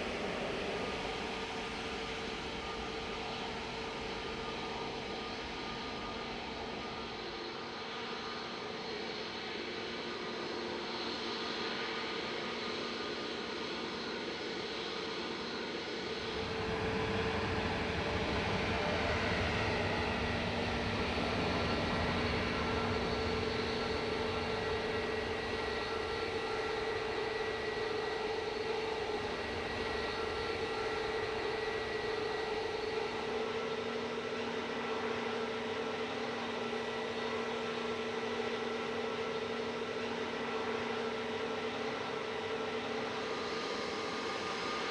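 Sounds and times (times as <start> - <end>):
airliner engines whining: 15.4 - 35.4.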